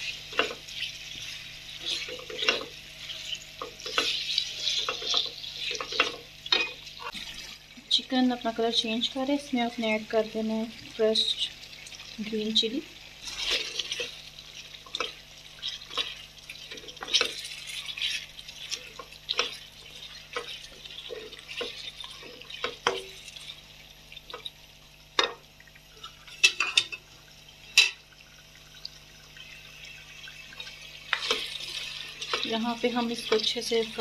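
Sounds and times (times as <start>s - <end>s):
faint sizzle of frying: 0.0s - 34.0s.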